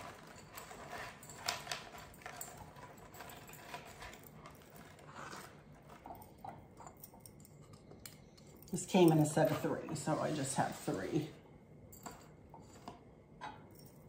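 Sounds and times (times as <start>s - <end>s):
plastic bag rustling: 0.0s - 6.1s.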